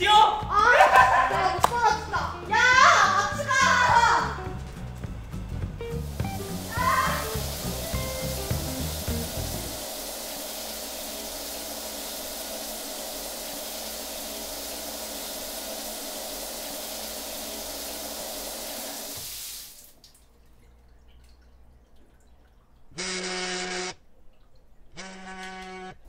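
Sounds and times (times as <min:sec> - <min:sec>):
shower water spraying: 0:00.6 - 0:20.2
faint water drips: 0:05.9 - 0:23.0, 0:24.0 - 0:25.0.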